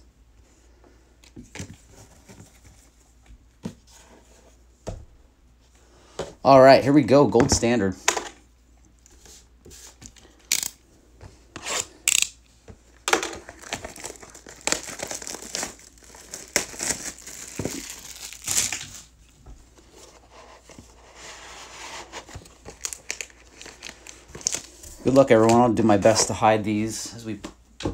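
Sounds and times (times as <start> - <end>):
plastic wrap crinkling: 13.4 - 19.1, 22.6 - 25.5
plastic wrap snapping: 13.5 - 19.0.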